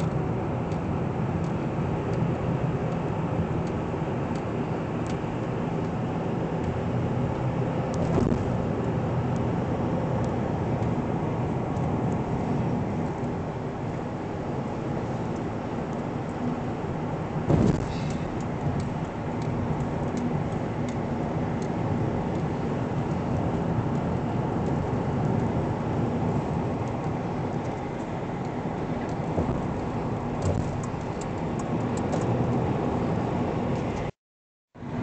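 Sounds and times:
road and engine noise in car: 0.0 - 34.2, 34.8 - 35.0
thump: 17.5 - 18.2.

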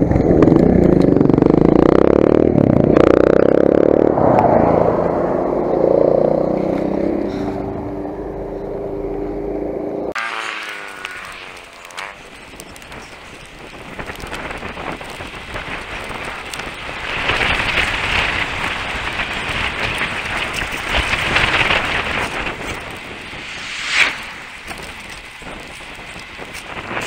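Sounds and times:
bike tyres on tarmac: 0.0 - 27.0
wind on microphone: 12.2 - 27.0
short sharp noise burst: 23.4 - 25.1.

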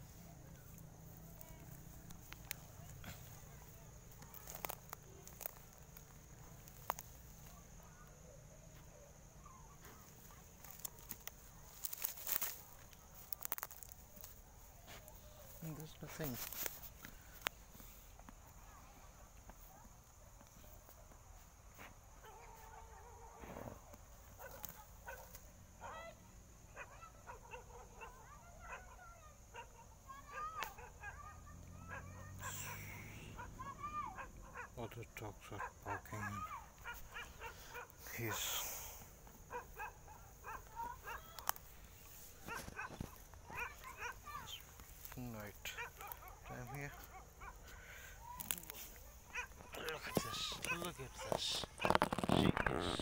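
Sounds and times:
dry grass rustling: 0.0 - 7.8, 9.8 - 18.4, 39.1 - 53.0
sharp crackles: 0.0 - 8.2, 9.9 - 17.9, 36.2 - 53.0
cricket chorus: 0.0 - 53.0
distant dogs barking: 21.0 - 53.0.

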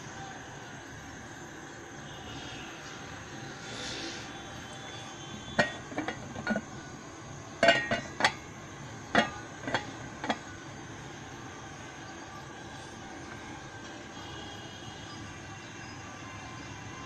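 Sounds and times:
steady steam hiss: 0.0 - 17.0
pot lid clinking against rim: 5.6 - 6.6, 7.6 - 8.4, 9.1 - 10.4.

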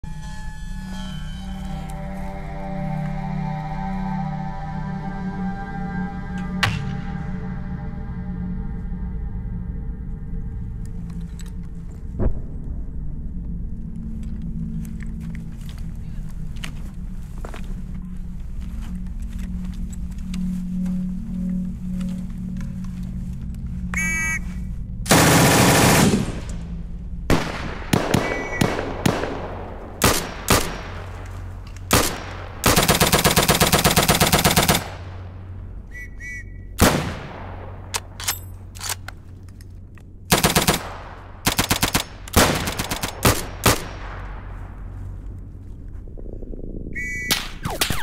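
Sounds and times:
shrill whistle blast: 0.0 - 7.4, 23.9 - 24.6, 28.2 - 28.6, 35.9 - 36.7, 47.0 - 48.0
automatic gunfire: 25.1 - 26.5, 27.3 - 31.0, 31.9 - 35.1, 40.3 - 43.9.

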